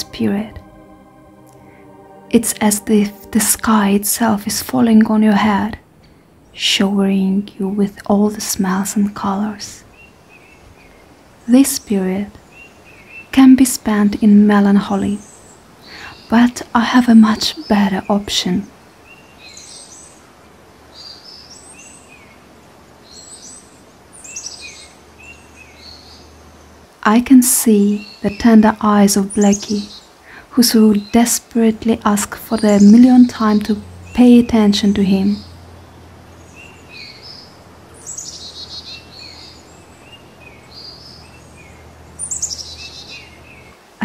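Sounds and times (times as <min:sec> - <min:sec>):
bird singing a downward trill: 0:00.0 - 0:04.7, 0:32.2 - 0:43.8
faint background noise: 0:00.0 - 0:44.0
faint woodland hiss: 0:08.3 - 0:44.0
small songbirds chirping: 0:20.9 - 0:27.0, 0:27.6 - 0:44.0.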